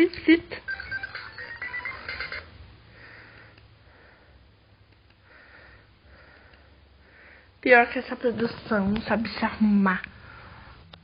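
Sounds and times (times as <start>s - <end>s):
soft breaths close to microphone: 2.8s - 9.4s, 10.0s - 11.0s.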